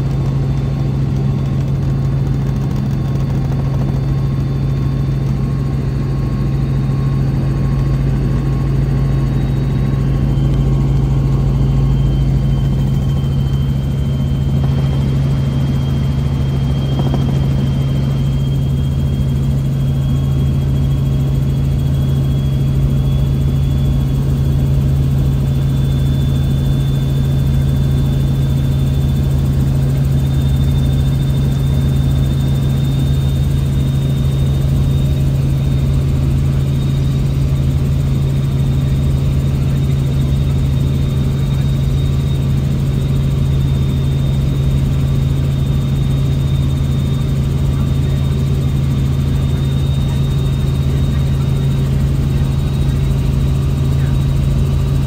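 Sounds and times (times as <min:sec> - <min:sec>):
helicopter rotor and engine drone: 0:00.0 - 0:55.0
thin high whine: 0:09.0 - 0:22.1.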